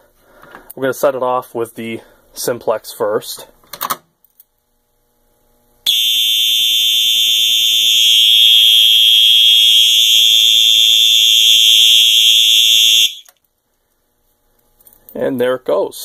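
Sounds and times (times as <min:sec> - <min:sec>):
fire alarm horn: 0:05.9 - 0:13.4.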